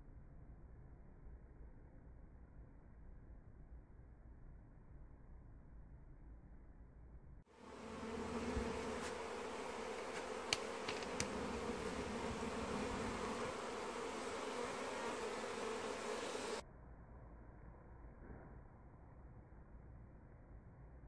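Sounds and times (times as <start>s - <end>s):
bees buzzing: 7.6s - 16.6s
sharp clicks: 10.5s - 11.4s.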